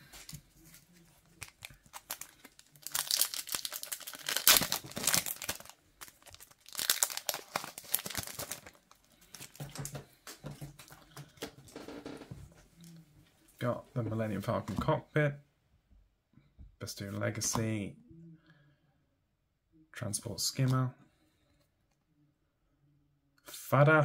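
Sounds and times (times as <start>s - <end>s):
cards rustling: 0.0s - 11.5s
foil wrapper crinkling and tearing: 1.2s - 9.9s.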